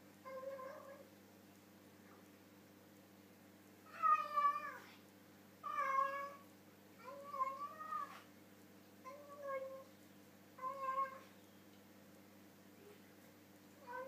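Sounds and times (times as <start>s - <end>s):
cat meowing while eating: 7.0s - 8.2s, 10.6s - 11.3s, 13.8s - 14.0s.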